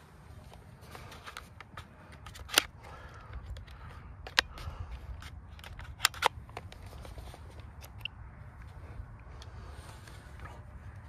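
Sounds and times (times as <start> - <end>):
steady low rumble: 0.0 - 11.0
plastic clicks and snaps: 1.3 - 7.1.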